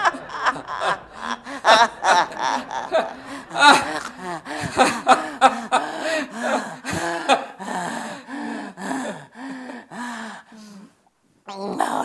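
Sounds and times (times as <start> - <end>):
woman laughing in breathy gasps: 0.0 - 9.2.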